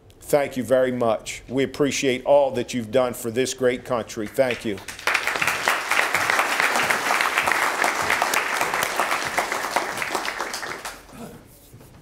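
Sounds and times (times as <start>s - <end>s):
audience applauding: 4.5s - 11.2s.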